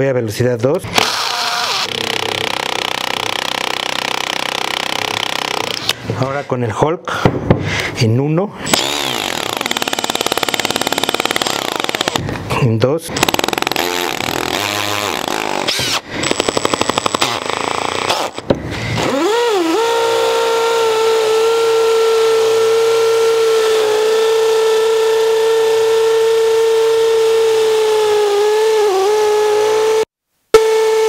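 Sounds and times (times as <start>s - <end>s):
drill motor whining: 1.0s - 6.0s, 8.7s - 12.2s, 13.2s - 30.0s
hammer drill rattling impacts: 1.8s - 5.9s, 8.7s - 12.3s, 13.2s - 18.6s.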